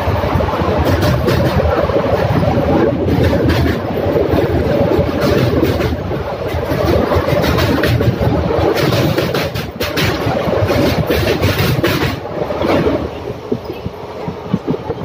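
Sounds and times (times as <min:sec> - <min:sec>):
train rumbling: 0:00.0 - 0:15.0
train wheels clattering over rails: 0:00.0 - 0:15.0.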